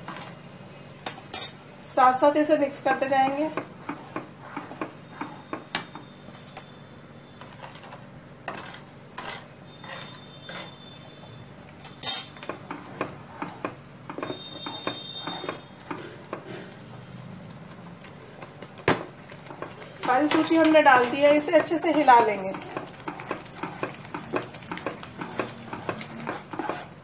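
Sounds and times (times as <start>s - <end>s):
wooden spatula scraping a pan: 3.2s - 5.6s, 7.3s - 11.0s, 12.4s - 17.0s, 19.3s - 27.0s.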